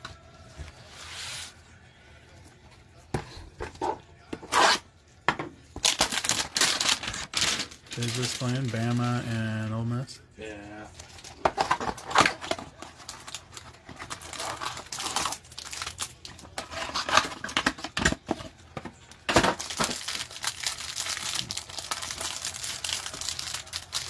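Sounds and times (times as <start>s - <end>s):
plastic wrap crinkling: 5.8s - 9.4s, 11.0s - 17.5s, 19.3s - 24.0s.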